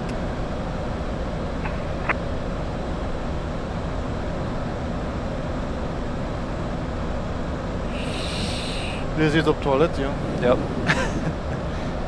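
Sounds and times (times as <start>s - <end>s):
aircraft engine noise: 0.0s - 12.0s
rush of airflow: 7.7s - 9.3s.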